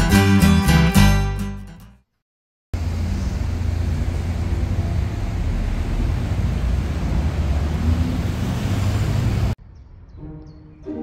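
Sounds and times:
low city rumble: 2.8 - 10.8.

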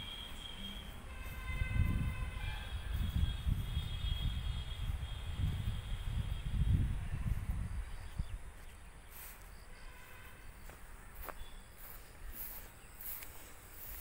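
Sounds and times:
faint chirping: 0.0 - 1.5
footsteps through grass: 0.0 - 14.0
wind rumble on microphone: 1.1 - 9.3.

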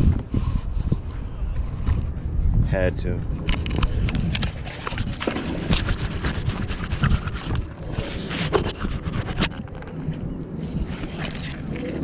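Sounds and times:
rope rubbing and scraping: 3.5 - 9.9, 10.6 - 12.0.

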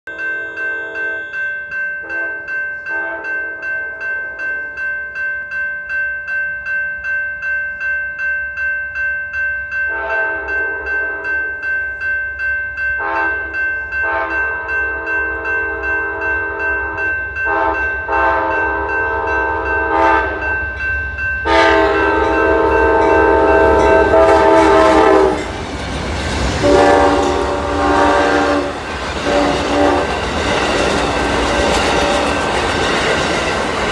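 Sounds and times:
crossing bell ringing: 0.1 - 33.9
train horn blasts: 2.0 - 3.9, 9.9 - 11.5, 13.0 - 20.4, 21.4 - 25.5, 26.6 - 30.3
train wheels rushing past: 21.4 - 33.9.

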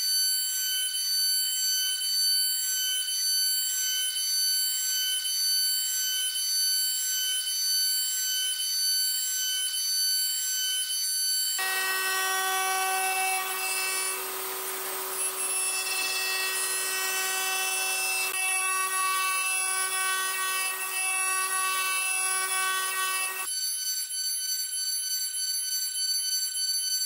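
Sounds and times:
cutting hiss: 11.6 - 23.5
milling spindle whine: 11.6 - 23.5.

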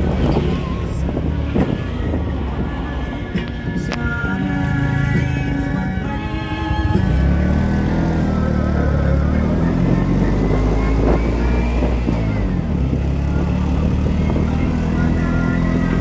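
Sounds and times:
small motorcycle engine running: 6.6 - 16.0.

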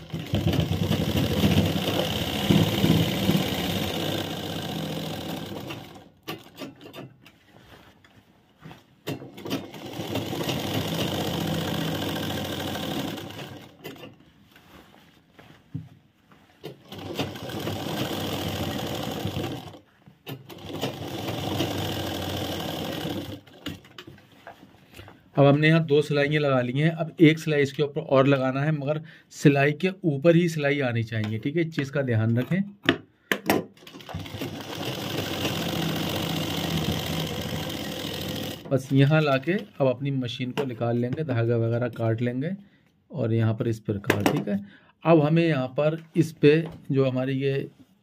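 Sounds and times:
sewing machine stitching: 0.0 - 7.1, 9.0 - 14.1, 16.6 - 24.1, 33.8 - 39.7.

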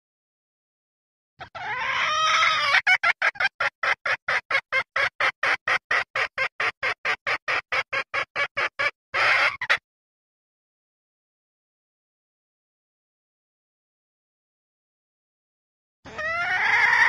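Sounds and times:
hen clucking: 1.4 - 9.8, 16.1 - 17.0.

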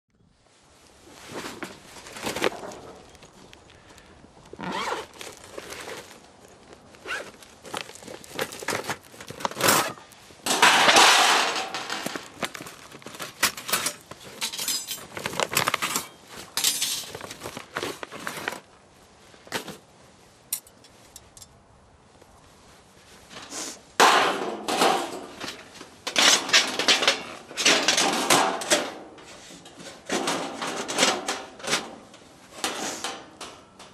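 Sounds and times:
metal parts clinking and scraping: 4.7 - 18.6, 20.5 - 21.5, 24.1 - 33.9
metal sheet scraping rattle: 8.4 - 17.5, 24.0 - 33.8.

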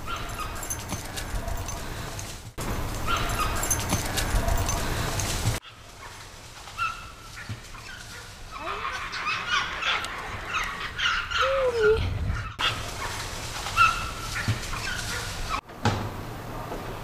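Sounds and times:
animal chirps and squeals: 6.8 - 13.2
animal whining call: 8.5 - 12.6.

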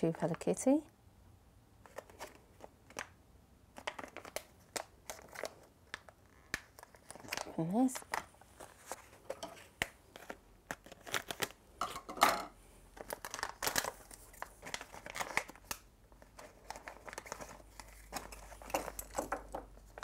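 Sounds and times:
plastic foil bag tearing and crinkling: 3.8 - 8.9, 10.2 - 11.6, 13.0 - 20.0.

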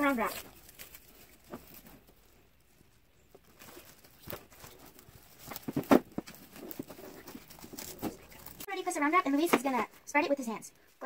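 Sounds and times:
plastic wrap crinkling: 0.0 - 8.7.

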